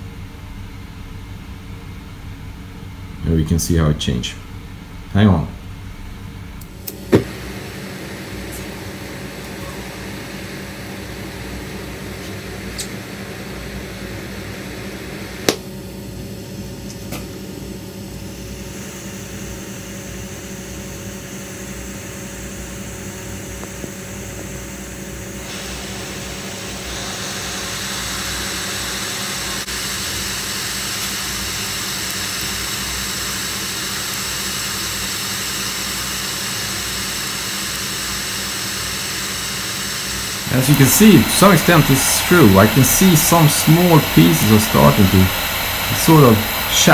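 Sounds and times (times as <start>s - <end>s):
torch flame hissing: 6.8s - 15.6s, 18.3s - 46.9s.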